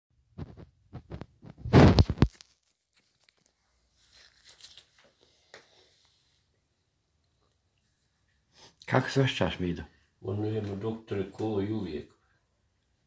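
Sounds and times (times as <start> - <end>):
phone rustling and scraping: 0.4 - 5.2.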